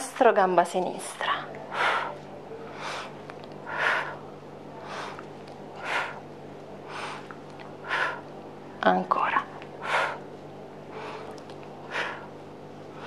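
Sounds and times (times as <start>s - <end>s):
woman breathing hard: 1.6s - 8.4s, 9.7s - 13.0s.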